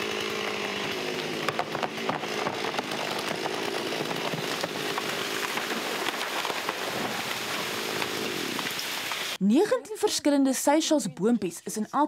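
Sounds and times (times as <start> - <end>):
chainsaw cutting tree trunk: 0.0 - 9.4.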